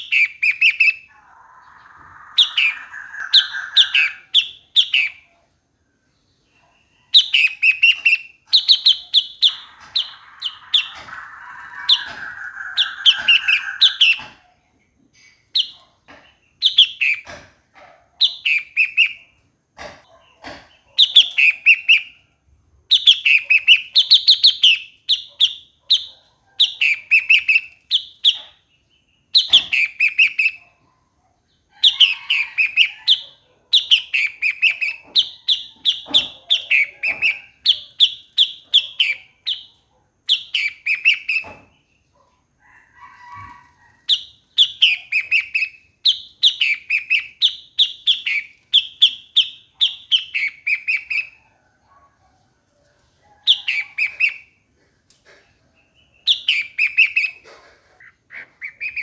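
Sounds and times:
bird singing bubbling phrases: 0.0s - 5.2s.

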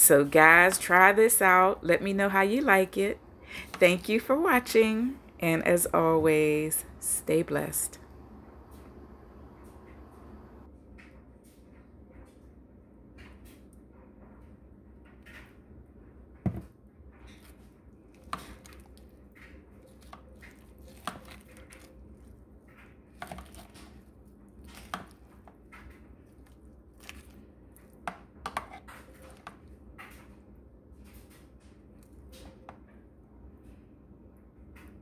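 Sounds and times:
salad rustling and squishing: 17.3s - 29.7s.

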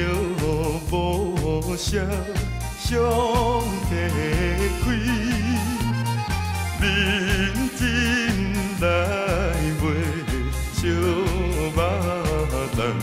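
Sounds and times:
song with bass beat: 0.0s - 13.0s.

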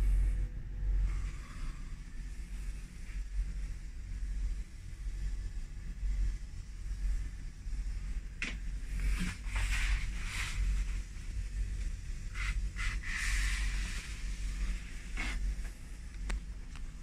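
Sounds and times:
steady low rumble: 0.0s - 17.0s
shower curtain rustling: 9.0s - 11.1s.

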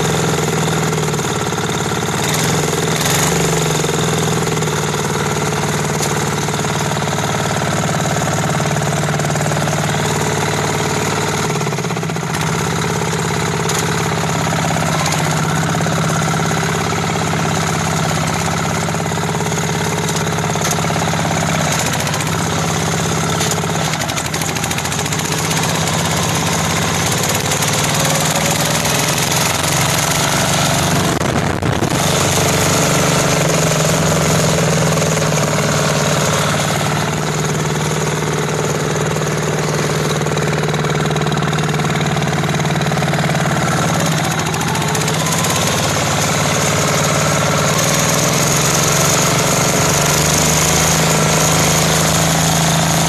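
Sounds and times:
mower diesel engine running: 0.0s - 53.0s.

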